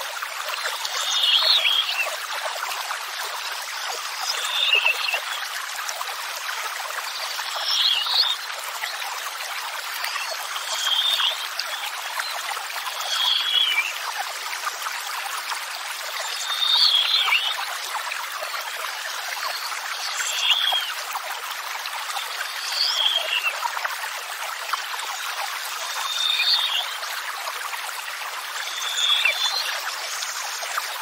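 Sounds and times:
running water: 0:00.0 - 0:31.0.

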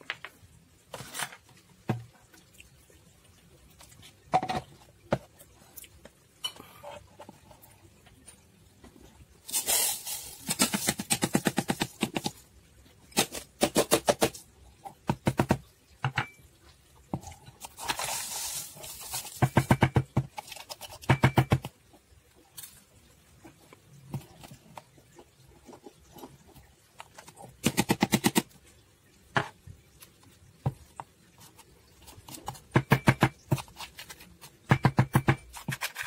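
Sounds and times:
powder pouring hiss: 0:09.4 - 0:11.0, 0:17.7 - 0:19.5.

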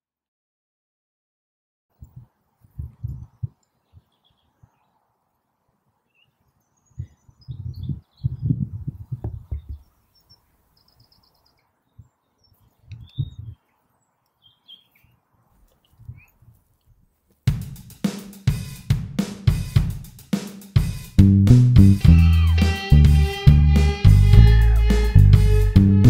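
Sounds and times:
faint bird chirps: 0:01.9 - 0:05.4, 0:06.0 - 0:16.5
rock drum kit music: 0:17.5 - 0:26.0.

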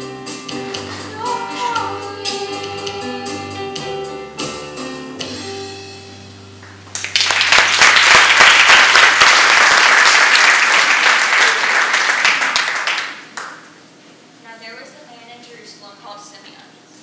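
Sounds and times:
guitar chord ringing: 0:00.6 - 0:07.0
audience applause: 0:06.6 - 0:13.6.

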